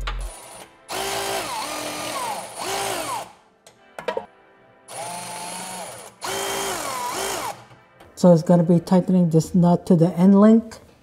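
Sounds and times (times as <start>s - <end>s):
cordless power tool whine: 0.2s - 3.3s, 4.9s - 7.7s.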